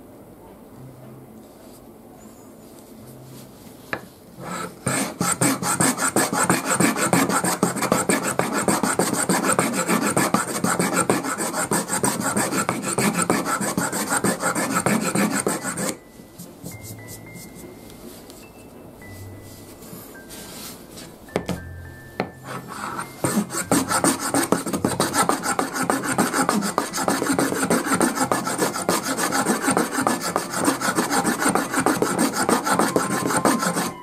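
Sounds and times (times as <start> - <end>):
wooden plane rasping over blade: 4.4 - 16.0, 22.4 - 34.0.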